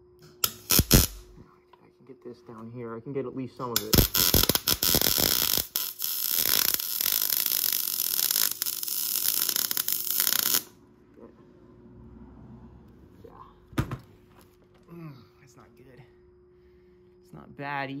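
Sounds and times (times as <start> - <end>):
welding arc crackling: 0.4 - 1.4, 3.7 - 10.8.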